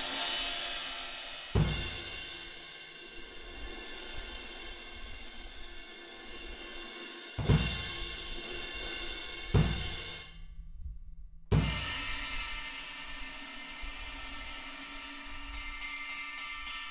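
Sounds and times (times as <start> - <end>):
crash cymbal ringing: 0.0 - 2.4
ride cymbal crash: 0.0 - 4.7
bass drum kick: 9.6 - 10.0.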